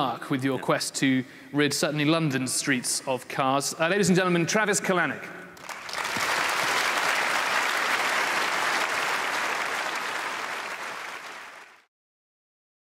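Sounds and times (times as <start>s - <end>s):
audience applauding: 5.6s - 11.9s.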